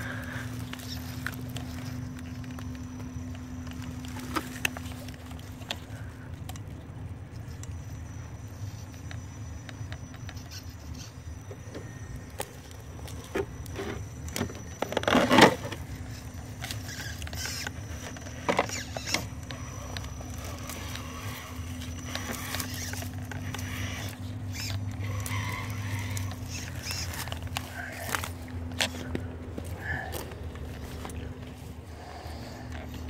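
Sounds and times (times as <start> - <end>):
toy car motor humming: 0.0 - 33.0
loud scraping crunch: 11.8 - 33.0.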